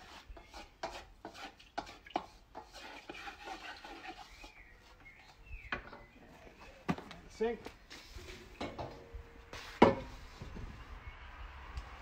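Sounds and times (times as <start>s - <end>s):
wok being scraped and scrubbed: 0.0s - 5.5s.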